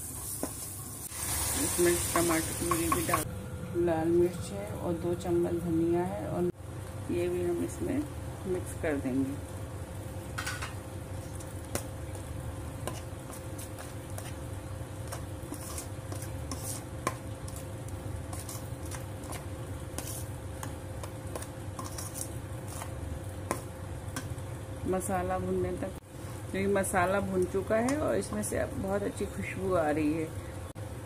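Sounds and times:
steady low hum: 1.3 - 31.0
metal spoon scraping metal pan: 15.5 - 16.8, 21.8 - 22.9.

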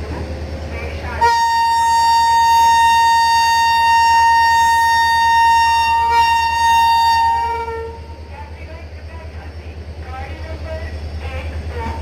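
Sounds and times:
low rumble of moving train: 0.0 - 12.0
locomotive air horn blast: 1.2 - 8.2.

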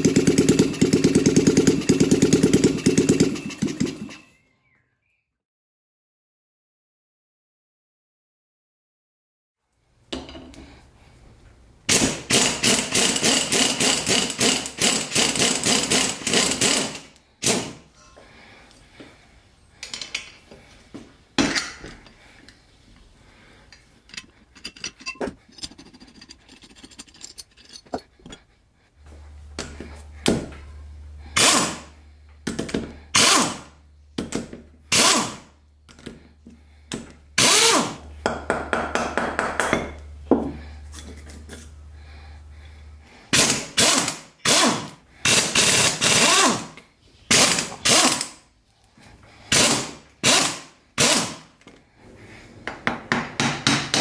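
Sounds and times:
cordless drill short bursts: 11.9 - 17.7, 31.4 - 31.9, 33.1 - 33.7, 34.9 - 35.5, 37.4 - 38.0, 43.3 - 48.4, 49.5 - 51.5
hand tools clicking and tapping: 23.7 - 28.4.

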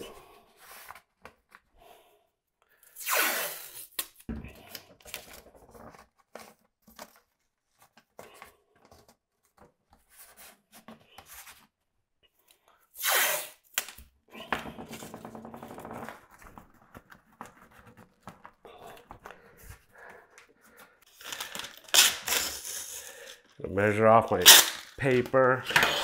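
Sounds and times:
masking tape pulled and torn: 2.8 - 5.3, 13.0 - 14.0, 21.1 - 23.5, 24.3 - 25.2
tape crackling unroll: 15.0 - 23.7, 24.3 - 26.0.

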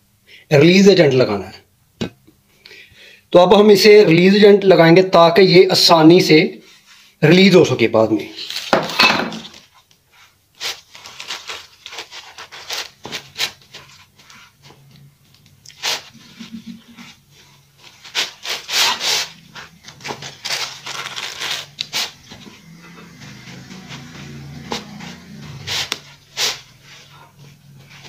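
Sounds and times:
pad rubbing on silicone mold: 15.8 - 28.0.

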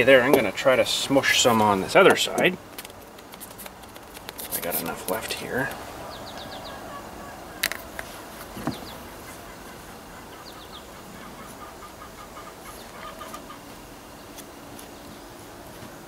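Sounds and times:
chickens clucking: 5.4 - 14.3.

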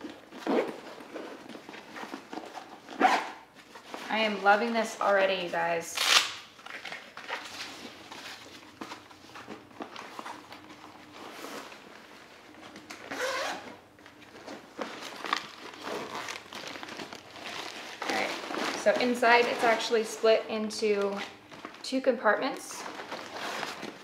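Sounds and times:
zipper being drawn: 3.0 - 3.4, 13.1 - 13.6
nylon bag rustling: 7.2 - 20.4.

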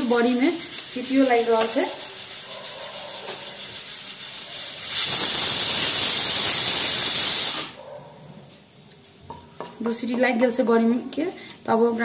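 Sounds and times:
spices sizzling in hot oil: 0.0 - 7.8
pressure cooker whistling: 3.4 - 7.8.

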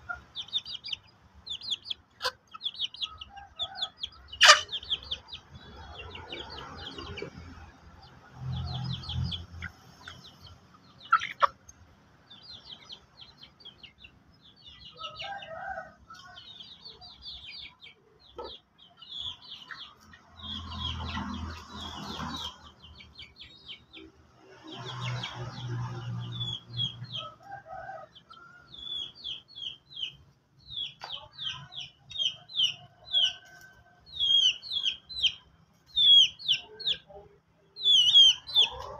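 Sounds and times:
chickens clucking: 0.0 - 38.9
rapid high-pitched chirping: 37.8 - 38.8.

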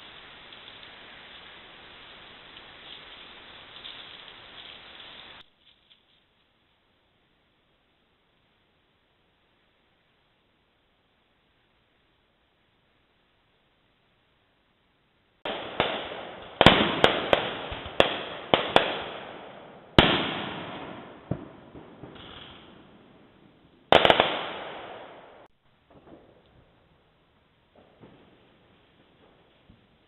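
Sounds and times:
firecrackers banging: 15.5 - 26.8.

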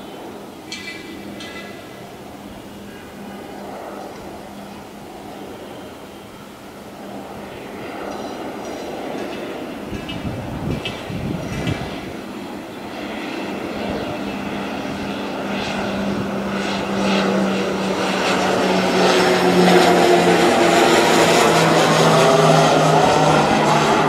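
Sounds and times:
propeller plane droning overhead: 0.0 - 24.0.

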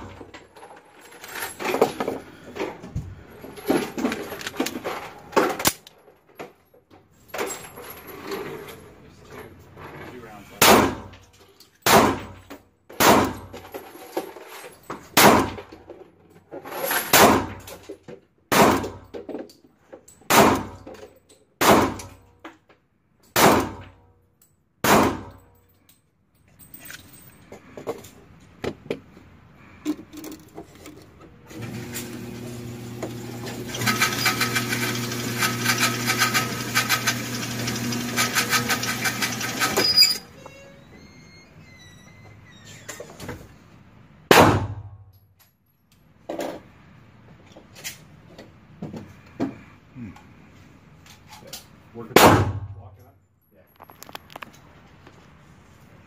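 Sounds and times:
pistol shots ringing indoors: 18.5 - 19.1, 20.3 - 20.8, 21.6 - 22.2, 23.3 - 24.0, 24.8 - 25.4, 44.3 - 45.0, 52.1 - 52.8.

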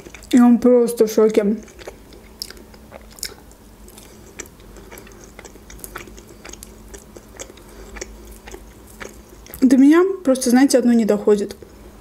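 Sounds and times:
person chewing food: 0.0 - 0.4, 1.6 - 9.7.

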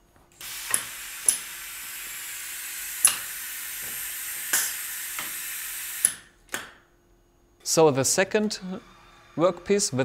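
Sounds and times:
faint steady hum: 0.0 - 10.0
steady machine hiss: 0.4 - 6.4.

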